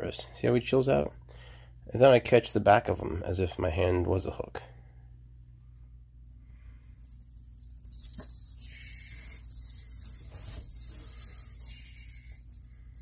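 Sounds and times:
rattlesnake tail rattling: 0:07.0 - 0:13.0.

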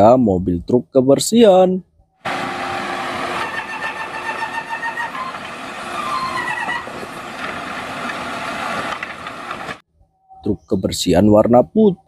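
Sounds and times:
garbage truck diesel engine running: 0:02.3 - 0:09.8
hydraulic arm whining: 0:02.3 - 0:09.8.

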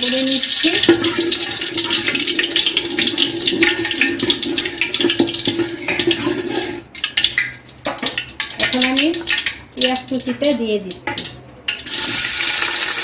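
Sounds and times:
oil sizzling and crackling: 0:00.0 - 0:13.0
spatula scraping pot: 0:00.6 - 0:06.9.

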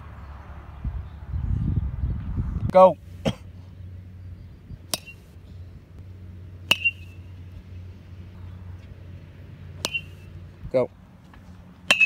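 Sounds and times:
metal bat pinging on ball: 0:04.9 - 0:05.2, 0:06.6 - 0:07.3, 0:09.8 - 0:10.3.

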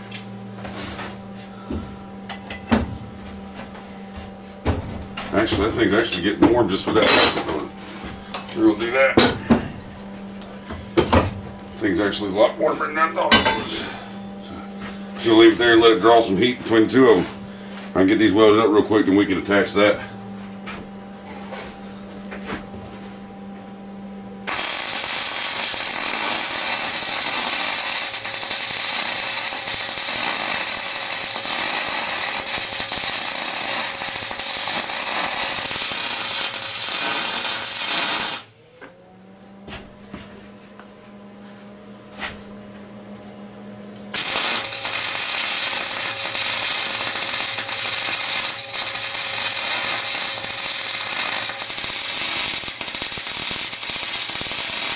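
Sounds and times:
low hum: 0:00.0 - 0:54.9
welder sizzling: 0:24.4 - 0:38.5, 0:44.0 - 0:54.9.

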